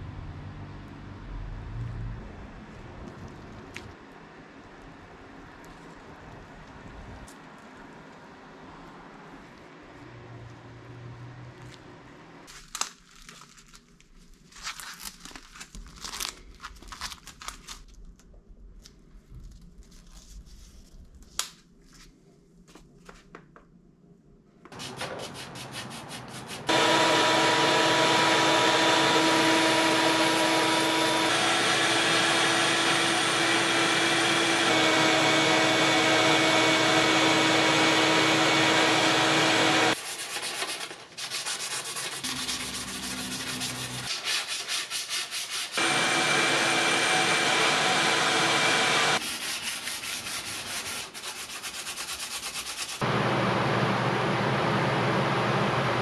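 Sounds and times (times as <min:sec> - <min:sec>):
sandpaper scraping: 0:24.7 - 0:26.9, 0:39.9 - 0:53.0.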